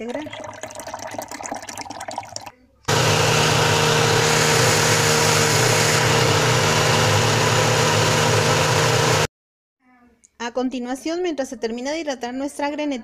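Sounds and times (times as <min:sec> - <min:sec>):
blender motor whirring: 0:02.9 - 0:09.3.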